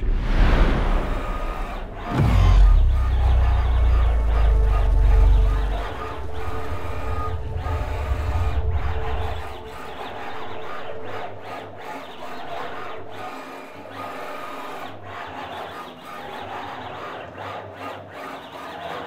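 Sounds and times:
cnc router whirring: 0.9s - 19.0s.

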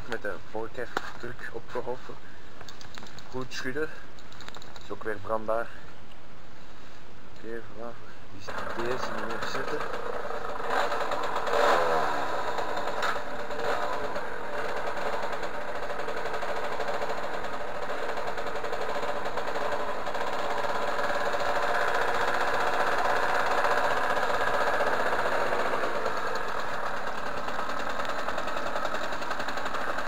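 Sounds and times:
moped engine running: 8.4s - 30.0s.

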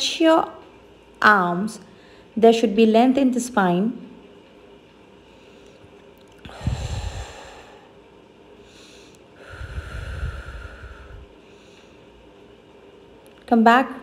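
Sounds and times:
deep breaths through nose: 5.3s - 12.3s.

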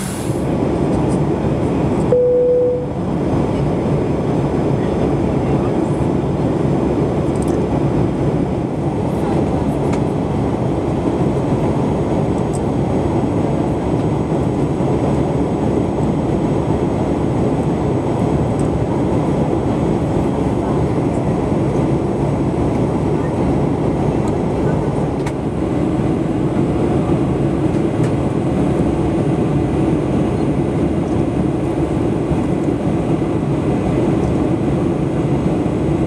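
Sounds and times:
aircraft cabin rumble: 0.0s - 36.0s
short tone: 2.1s - 3.0s.

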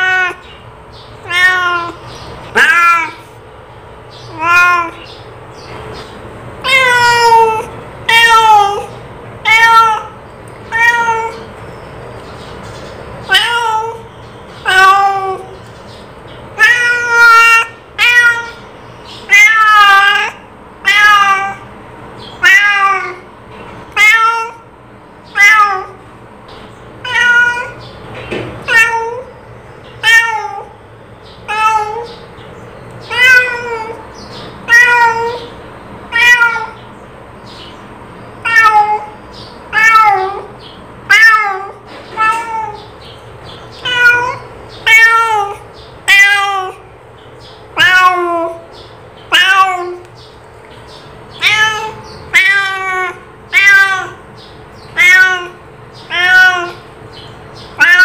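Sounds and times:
cat meowing: 0.0s - 0.6s, 1.2s - 3.4s, 4.2s - 5.2s, 6.6s - 11.5s, 13.3s - 15.6s, 16.6s - 21.7s, 22.4s - 23.3s, 23.9s - 26.0s, 27.0s - 27.9s, 28.6s - 29.4s, 30.0s - 30.8s, 31.5s - 32.2s, 33.0s - 36.9s, 38.4s - 43.0s, 43.7s - 46.9s, 47.7s - 48.7s, 49.3s - 50.1s, 51.3s - 56.9s, 57.6s - 58.0s.

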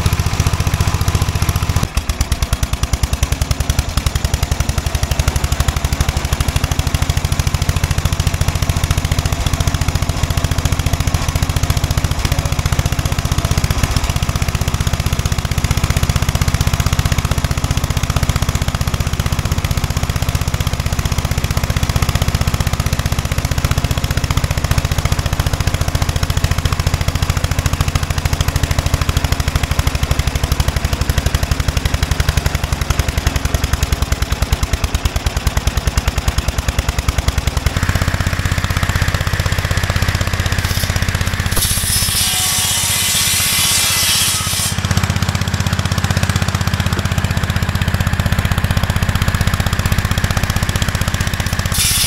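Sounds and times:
garden tractor engine running: 0.0s - 52.0s
saw blade spinning: 37.7s - 45.2s, 51.3s - 52.0s.

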